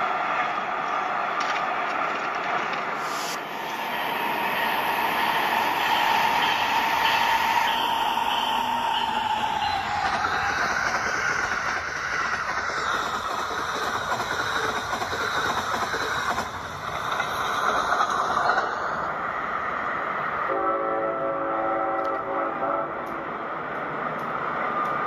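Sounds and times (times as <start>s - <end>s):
toy train horn chord: 20.5s - 23.2s.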